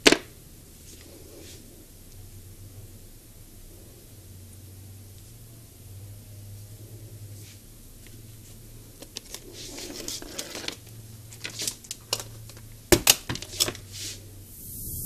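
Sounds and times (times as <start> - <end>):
faint low hum: 0.3 - 9.7
hiss: 13.9 - 15.0.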